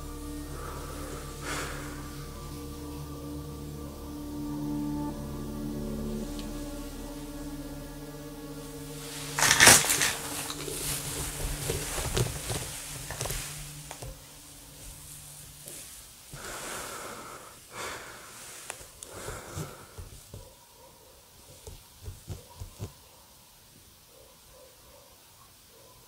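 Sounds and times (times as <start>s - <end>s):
low steady hum: 0.0s - 20.5s
breathy noises: 0.0s - 20.6s
clicks and rustles in rubble: 9.4s - 14.1s.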